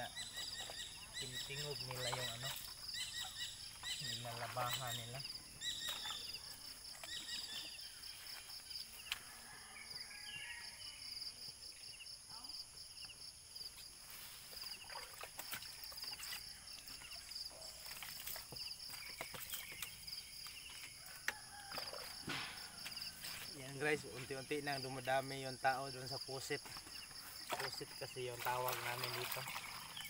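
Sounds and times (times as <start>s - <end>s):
insects chirring: 0.0s - 30.0s
water splashing: 14.5s - 16.2s, 27.5s - 30.0s.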